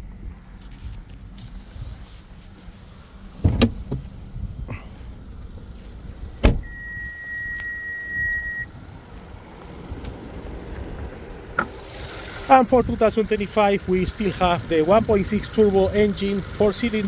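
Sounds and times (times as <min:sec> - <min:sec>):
car door slamming: 0:03.4 - 0:04.2, 0:06.4 - 0:06.8
high beep: 0:06.6 - 0:08.7.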